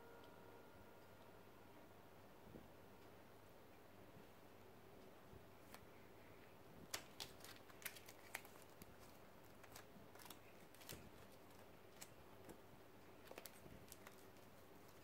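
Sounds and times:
plastic card sleeves flicking: 0:06.9 - 0:12.2.

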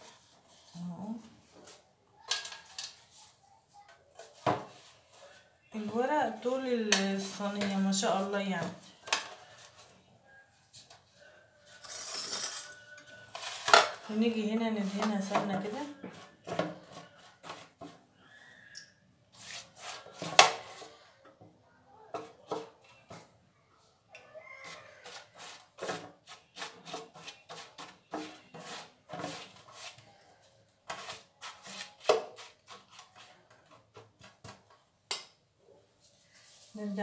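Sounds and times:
pastry brush brushing: 0:19.3 - 0:20.2, 0:24.6 - 0:30.2, 0:30.8 - 0:33.8.

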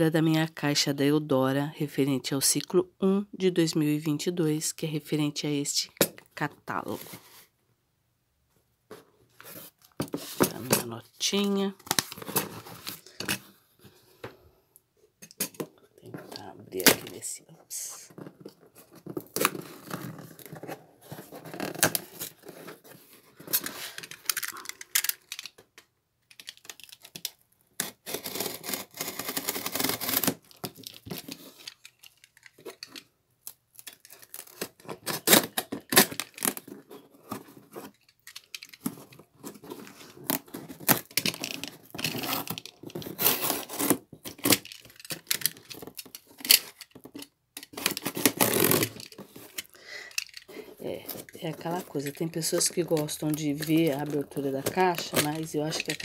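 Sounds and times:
cardboard box being cut and torn: 0:27.8 - 0:30.5, 0:42.1 - 0:44.5, 0:47.8 - 0:49.3.

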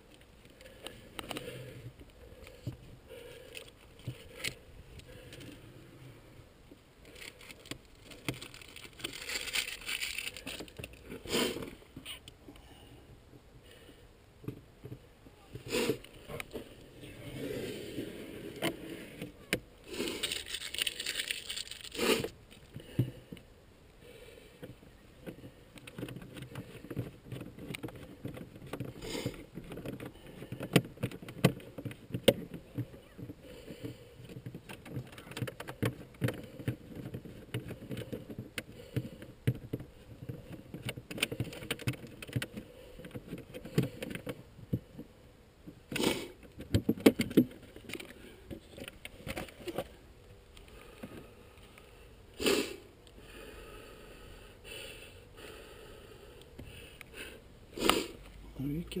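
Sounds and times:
rustling: 0:00.0 - 0:23.5.

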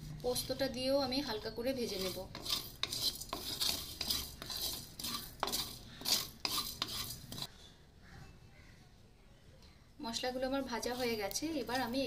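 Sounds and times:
wooden spatula scraping pan: 0:01.3 - 0:07.5, 0:10.7 - 0:12.0.

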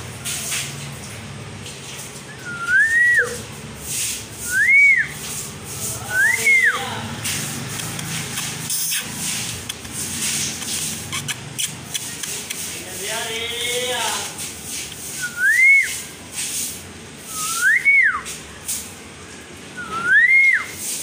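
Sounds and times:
rising and falling whistles: 0:02.4 - 0:03.4, 0:04.4 - 0:05.2, 0:15.2 - 0:16.0, 0:17.3 - 0:18.3, 0:19.8 - 0:20.8.

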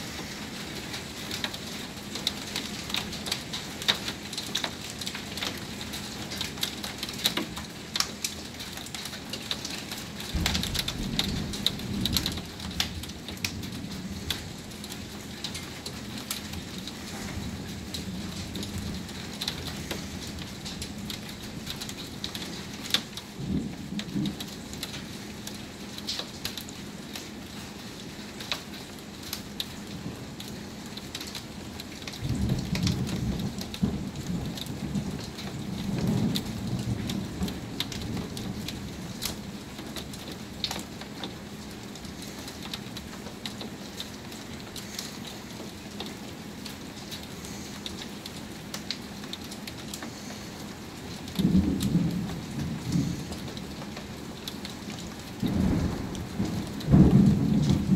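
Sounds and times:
heavy rain falling: 0:00.0 - 0:57.9
rain drops ticking: 0:00.0 - 0:57.9
low thunder rumbling: 0:10.2 - 0:15.2, 0:16.5 - 0:22.2, 0:32.2 - 0:39.6, 0:51.3 - 0:57.9.

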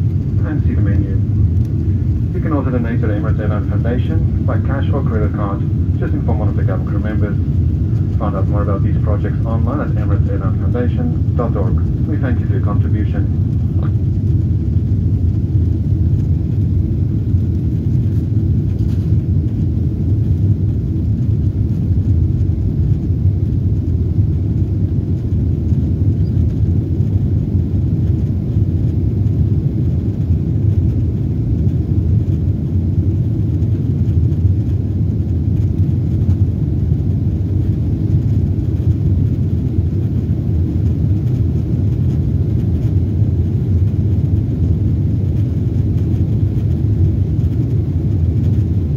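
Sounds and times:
jet engine rumble: 0:00.0 - 0:48.9.

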